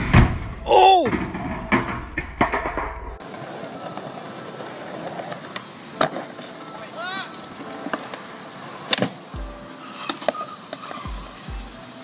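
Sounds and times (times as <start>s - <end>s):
sharp knocks and clatters: 0.0s - 3.2s.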